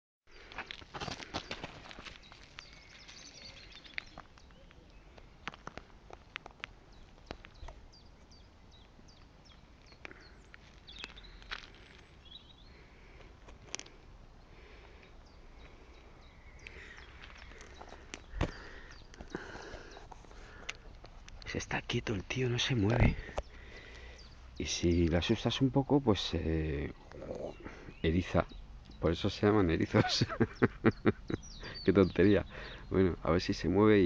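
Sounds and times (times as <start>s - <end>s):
gravel clicks and crunches: 0.3s - 24.3s
faint bird chirps: 2.2s - 5.3s.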